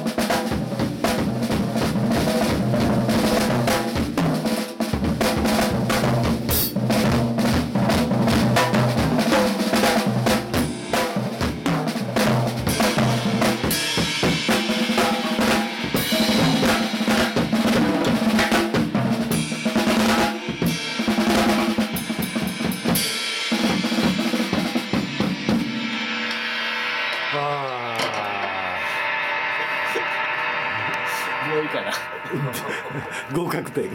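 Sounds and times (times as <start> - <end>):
snare drum rolls: 0.0 - 22.6
cymbals: 0.0 - 33.9
bass drum: 5.0 - 23.0.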